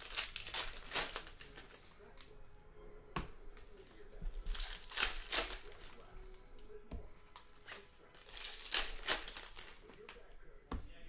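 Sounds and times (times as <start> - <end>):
card wrappers tearing and crinkling: 0.0 - 2.3, 4.4 - 6.1, 7.6 - 10.3.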